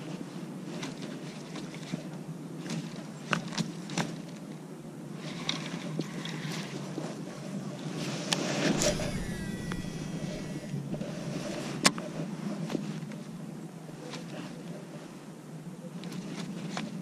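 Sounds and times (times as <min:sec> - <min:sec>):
low outdoor rumble: 0:08.6 - 0:11.9
fishing reel clicks: 0:08.8 - 0:11.2.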